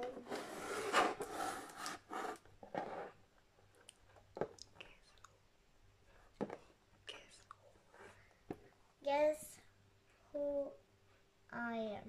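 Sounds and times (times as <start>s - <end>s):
hands rubbing cardboard box: 0.2s - 2.4s.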